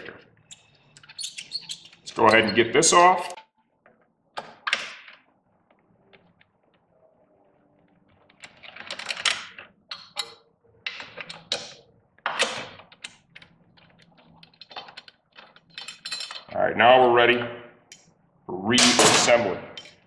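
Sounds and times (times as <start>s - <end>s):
metal tools clattering: 14.4s - 16.5s.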